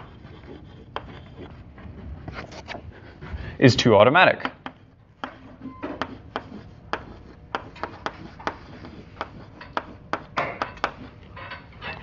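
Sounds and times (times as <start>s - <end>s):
chalk tapping on blackboard: 0.0s - 1.6s, 4.4s - 11.2s
chalk scraping: 0.0s - 3.4s, 4.6s - 11.3s.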